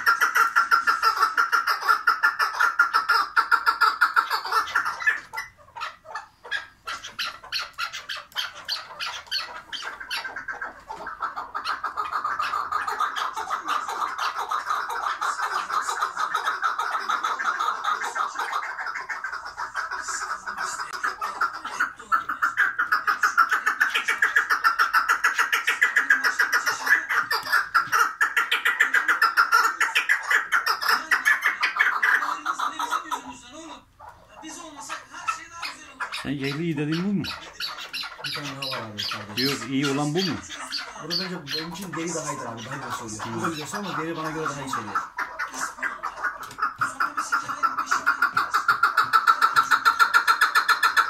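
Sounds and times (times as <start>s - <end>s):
partridge calling: 0.0s - 51.0s
partridge clucking: 34.0s - 51.0s.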